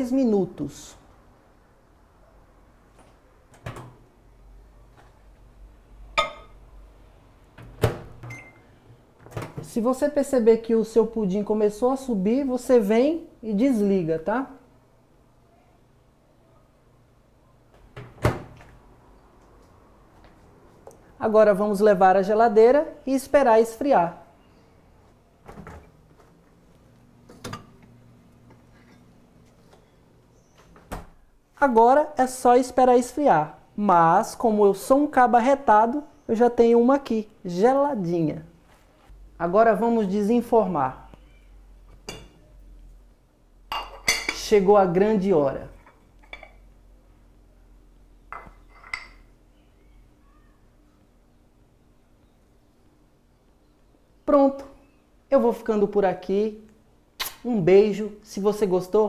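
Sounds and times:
faint low hum: 0.0s - 59.0s
short electronic keypad beep: 8.3s - 8.6s.

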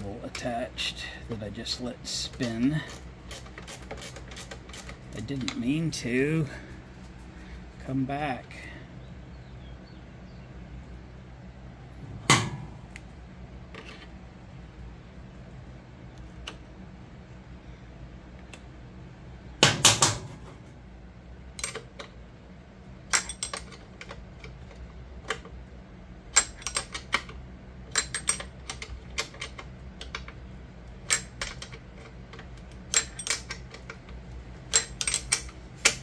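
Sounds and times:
wrench clicking on nut: 32.9s - 34.0s, 34.7s - 36.0s.

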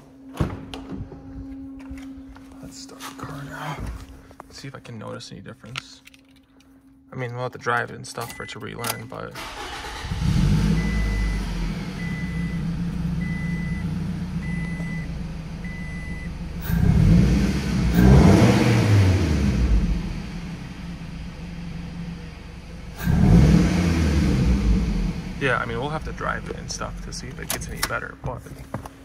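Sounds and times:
car engine revving: 9.4s - 15.6s, 16.3s - 27.8s.

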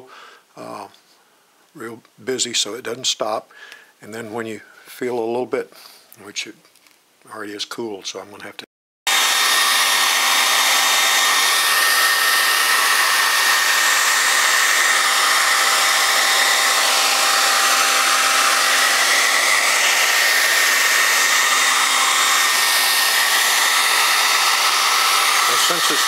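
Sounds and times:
hair dryer running: 9.1s - 26.0s.

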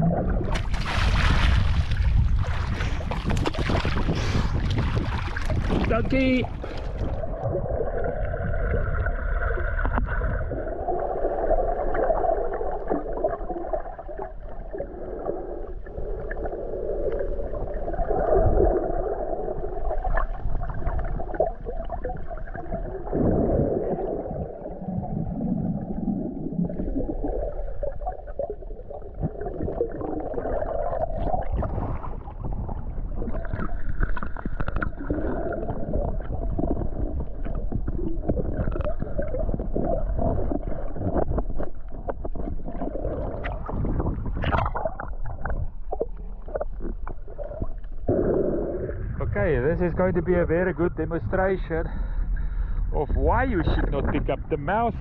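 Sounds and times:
muffled underwater churning: 0.0s - 55.0s
small underwater clicks: 33.4s - 40.0s.

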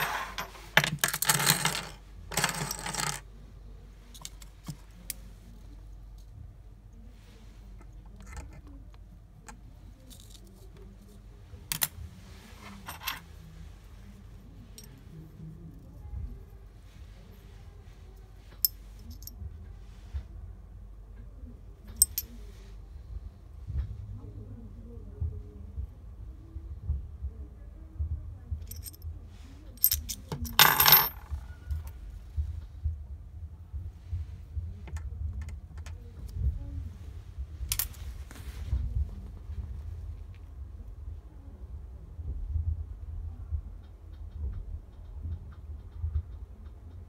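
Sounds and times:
metal keys clinking: 29.8s - 31.3s.

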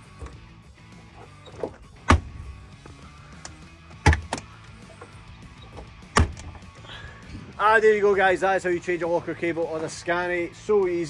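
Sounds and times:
latch clunk: 1.0s - 6.7s
locker door shutting clunk: 1.3s - 2.5s, 3.9s - 4.5s, 5.6s - 6.6s.

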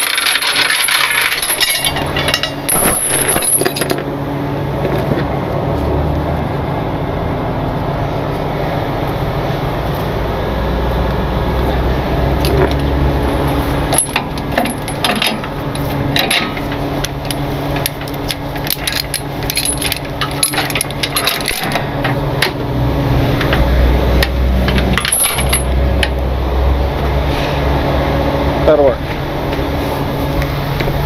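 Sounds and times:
steel chains clinking and rattling: 0.0s - 4.0s, 13.9s - 22.2s, 24.7s - 25.8s
steady low hum: 1.0s - 31.0s.

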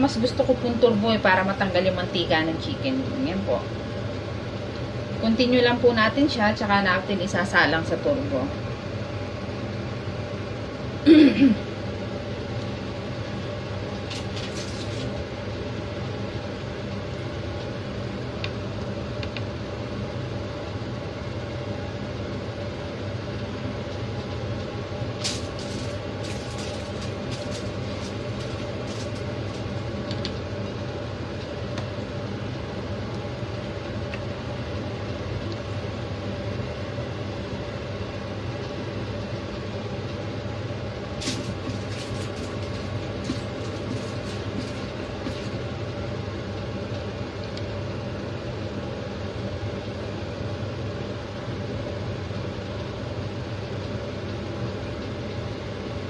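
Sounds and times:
steady machine hum: 0.0s - 56.0s
aluminium foil crinkling: 14.0s - 15.2s, 25.2s - 30.4s, 41.2s - 45.6s.

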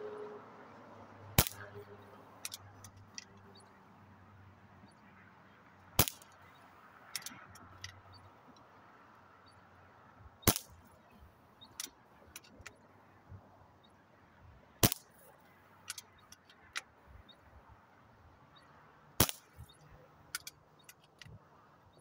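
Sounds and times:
air pistol shots: 1.4s - 1.8s, 6.0s - 6.3s, 10.4s - 10.8s, 14.8s - 15.2s, 19.2s - 19.8s.

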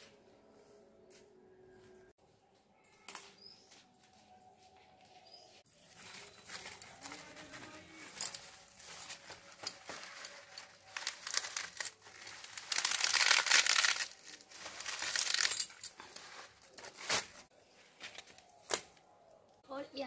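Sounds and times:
leaves rustling and being cut: 5.7s - 19.0s.

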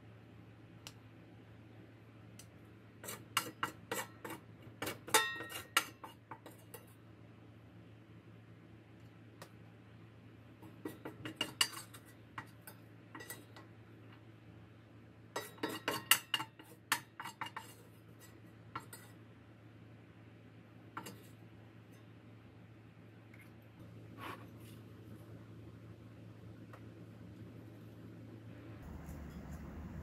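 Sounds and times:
utensils clinking on dishware: 3.0s - 6.9s, 15.4s - 19.1s.

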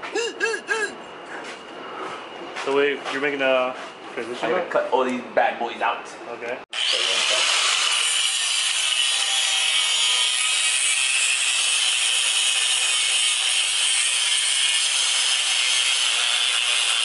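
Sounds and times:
angle grinder cutting steel: 6.7s - 17.0s.

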